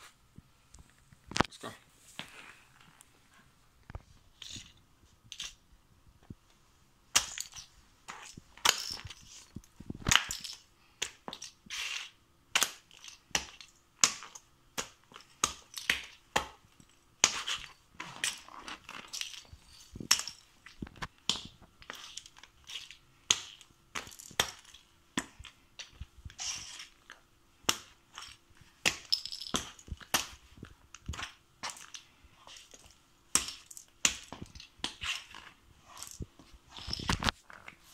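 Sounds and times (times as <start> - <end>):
shoes crunching figurines on floor: 27.8 - 37.9.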